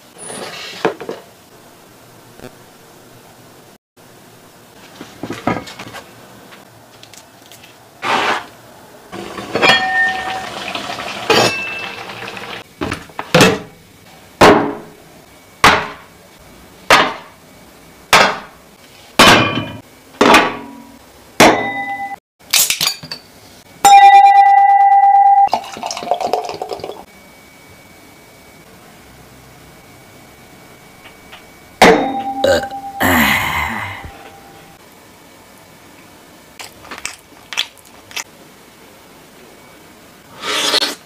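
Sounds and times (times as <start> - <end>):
dishes clinking and knocking: 9.4 - 10.7
sustained ringing tone: 23.8 - 25.5, 27.1 - 34.8.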